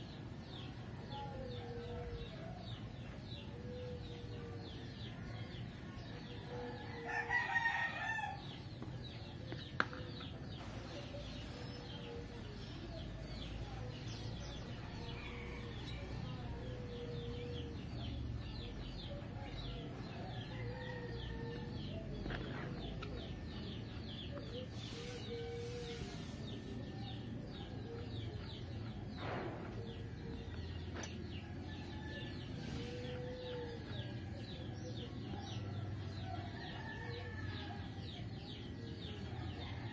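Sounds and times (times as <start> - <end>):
birds chirping: 0.0 - 39.9
rooster crowing: 6.9 - 8.5.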